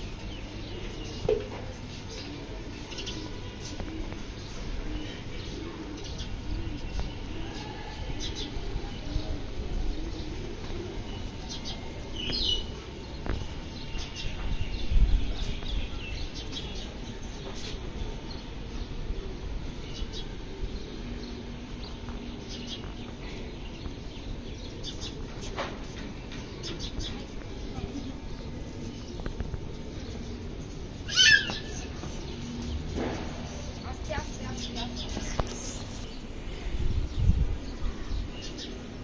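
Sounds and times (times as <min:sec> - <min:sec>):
low city rumble: 0:00.0 - 0:39.0
small birds chirping: 0:00.0 - 0:39.0
wind on microphone: 0:14.2 - 0:16.4, 0:35.1 - 0:38.3.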